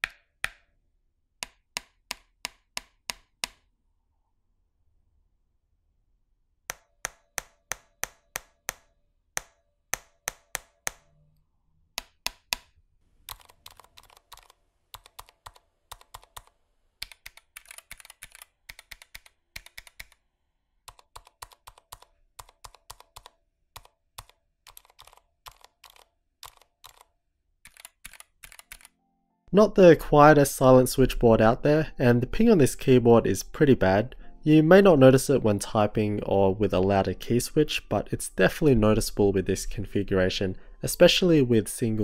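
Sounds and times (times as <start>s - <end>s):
keyboard typing: 12.0s - 29.0s.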